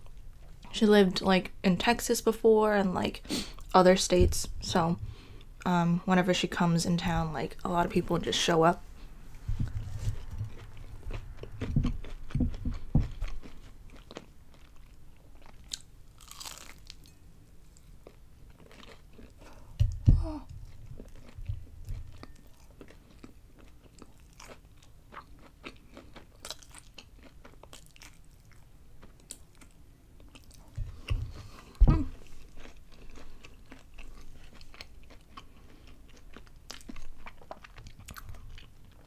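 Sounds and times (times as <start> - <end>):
wet chewing: 9.6 - 17.0
crunching bites of fried food: 10.5 - 17.0, 23.2 - 28.6.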